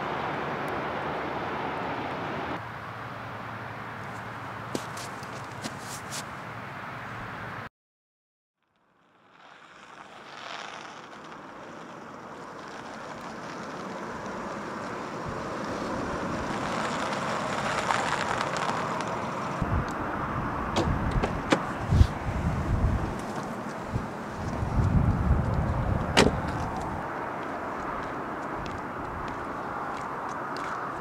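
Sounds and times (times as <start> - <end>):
tyres on wet road: 0.0 - 7.7, 8.8 - 31.0
car engine approaching: 9.0 - 31.0.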